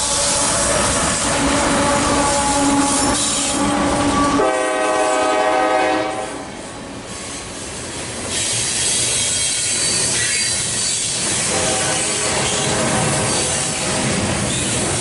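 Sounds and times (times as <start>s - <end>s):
multi-note locomotive horn: 0.0s - 6.6s, 11.4s - 14.1s
diesel locomotive running: 0.0s - 15.0s
train wheel clatter: 7.1s - 15.0s.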